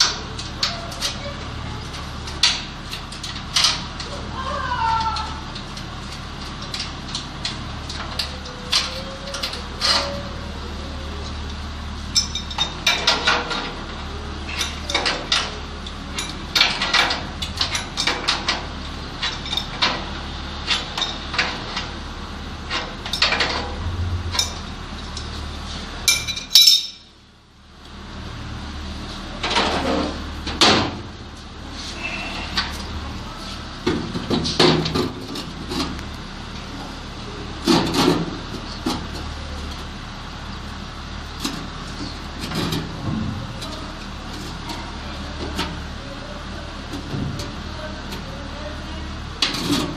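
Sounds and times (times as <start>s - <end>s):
screwdriver and metal parts clinking: 26.1s - 27.0s.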